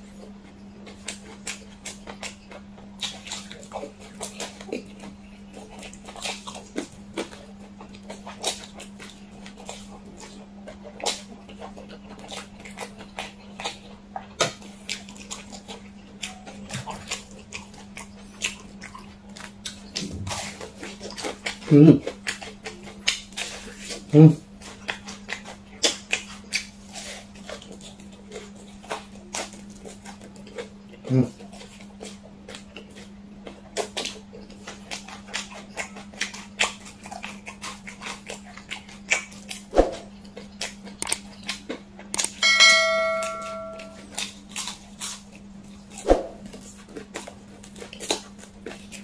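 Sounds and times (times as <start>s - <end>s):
slurping and chewing noodles: 0.0s - 42.4s, 44.0s - 49.0s
steady low hum: 17.3s - 22.1s, 42.4s - 44.2s
faint low hum: 42.4s - 44.2s.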